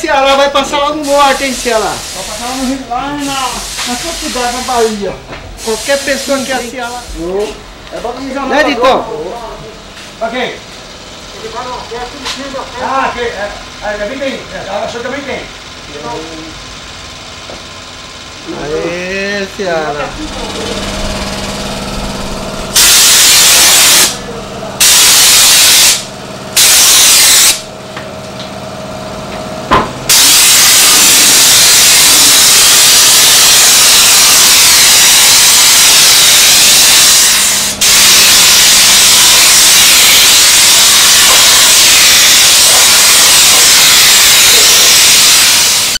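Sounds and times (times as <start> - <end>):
spray gun hissing: 1.0 - 5.0, 5.6 - 7.6, 20.1 - 27.7, 30.1 - 46.0.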